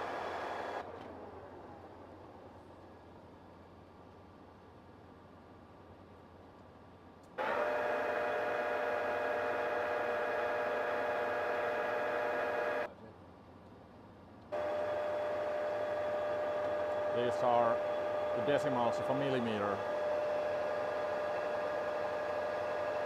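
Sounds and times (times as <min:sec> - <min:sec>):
metal lathe whining: 0:07.4 - 0:12.9, 0:14.6 - 0:23.0.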